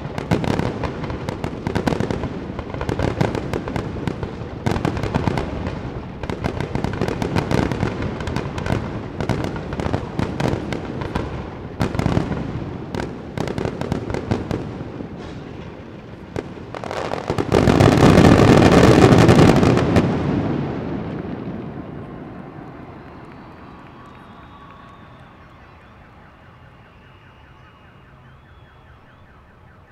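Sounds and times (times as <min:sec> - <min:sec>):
fireworks bangs and crackling: 0:00.0 - 0:29.9
continuous rush of noise: 0:20.3 - 0:29.9.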